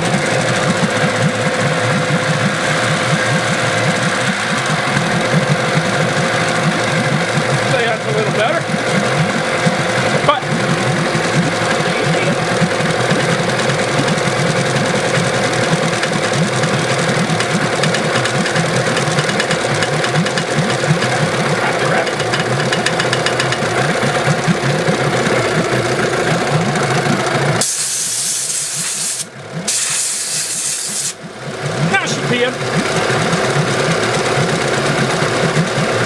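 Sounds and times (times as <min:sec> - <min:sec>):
outboard engine running: 0:00.0 - 0:36.0
loud hiss: 0:27.6 - 0:31.2.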